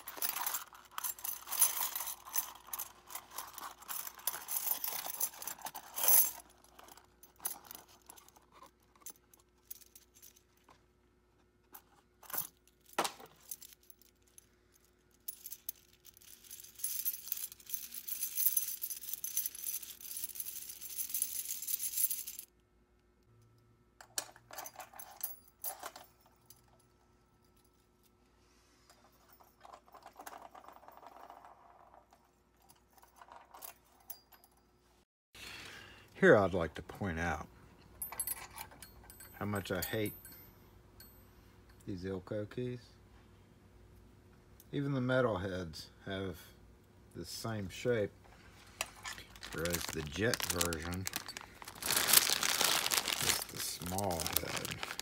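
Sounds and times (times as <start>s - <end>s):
metal keys clinking: 0.0s - 10.4s, 48.9s - 55.0s.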